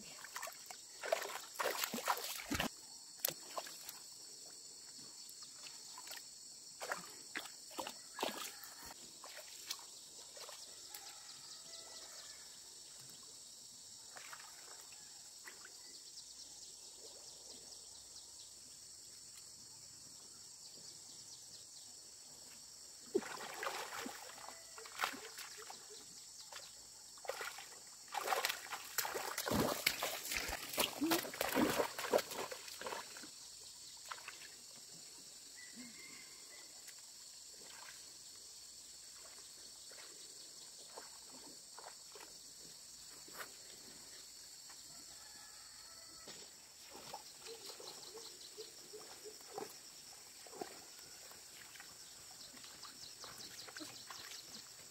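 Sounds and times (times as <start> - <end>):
muddy water splashing: 0.0 - 4.5, 5.4 - 11.0, 14.0 - 15.6, 23.0 - 34.9, 37.5 - 38.4, 39.0 - 42.4, 46.8 - 54.9
insects chorus: 0.0 - 54.9.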